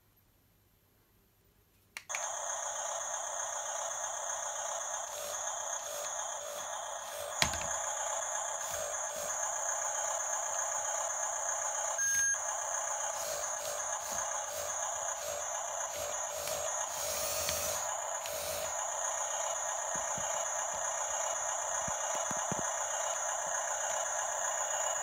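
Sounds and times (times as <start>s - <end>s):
tinny electronic toy sound effects: 2.1s - 25.0s
short beep: 12.0s - 12.4s.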